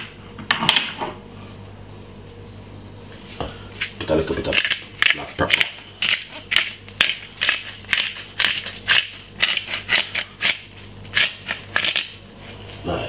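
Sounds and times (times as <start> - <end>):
pepper mill grinding: 3.8 - 12.7.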